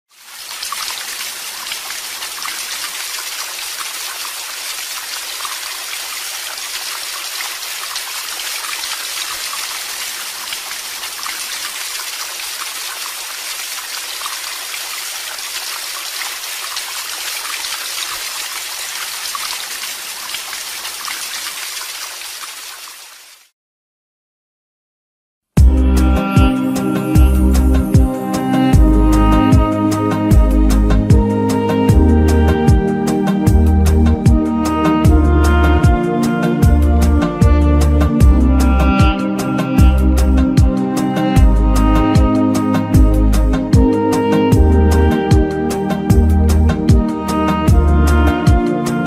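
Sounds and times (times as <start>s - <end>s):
small waterfall rushing: 0.1s - 23.5s.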